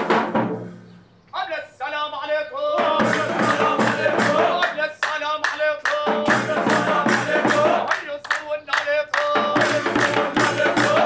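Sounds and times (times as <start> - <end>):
group singing: 2.6 - 11.0
rhythmic hand clapping: 2.8 - 11.0.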